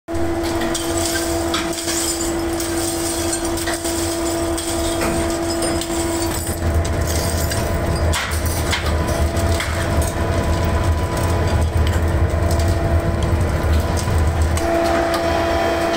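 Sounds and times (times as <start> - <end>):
machinery hum with whine: 0.1 - 15.9
scrap metal clinking with tongs: 0.4 - 10.2.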